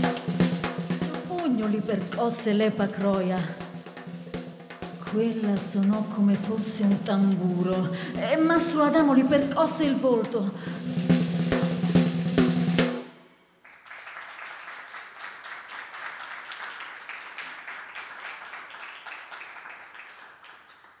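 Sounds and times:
snare drum roll: 0.0 - 13.2
snare drum hits: 11.0 - 13.1.

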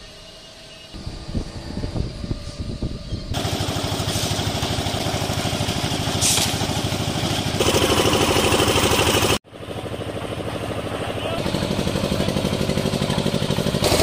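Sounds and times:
concrete mixer engine running: 3.3 - 14.0.

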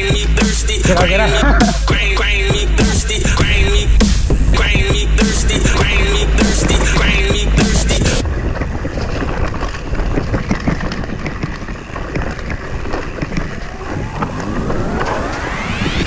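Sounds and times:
bike tyres on dirt: 0.0 - 16.0
wind buffeting microphone: 2.8 - 16.0
bike clattering and rattling: 2.9 - 15.9
rising electronic sweep: 13.6 - 16.0.

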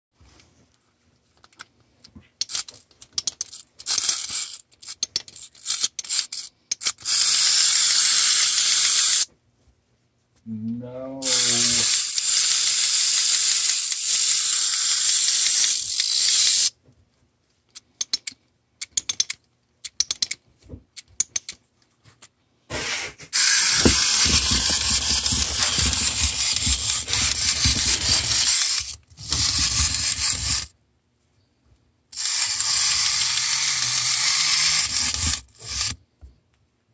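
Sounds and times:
winding key ratchet clicks: 2.4 - 9.2, 11.3 - 16.7, 32.2 - 36.0
clockwork motor whirring: 5.6 - 9.3, 11.2 - 16.7, 23.4 - 30.7, 32.2 - 36.0
toy knocking on table: 23.4 - 28.5.

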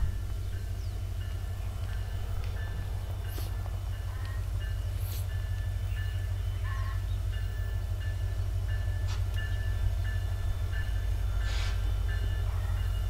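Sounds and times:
diesel locomotive rumbling: 0.0 - 13.0.

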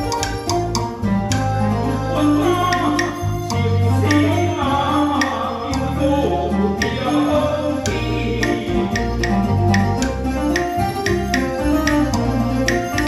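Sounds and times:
sharp percussion strikes: 0.0 - 1.6, 6.8 - 13.0
electronic keyboard bass notes: 0.0 - 13.0.

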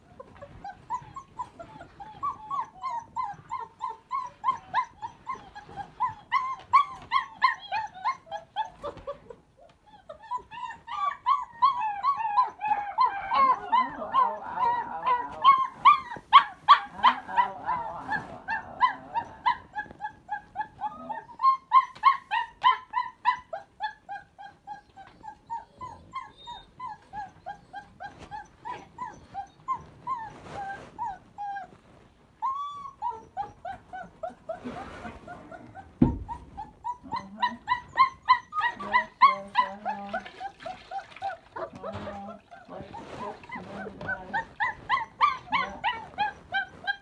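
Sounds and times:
puppies yelping and whimpering: 0.1 - 47.0
low thump: 36.0 - 36.4.

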